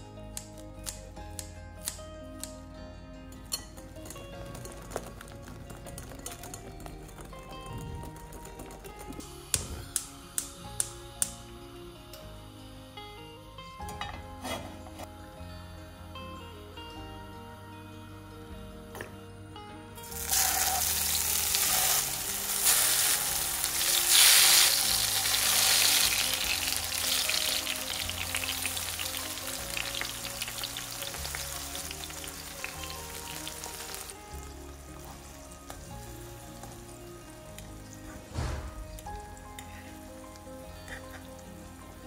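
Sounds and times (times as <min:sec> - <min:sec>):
tomato slices sizzling in oil: 0:20.0 - 0:38.4.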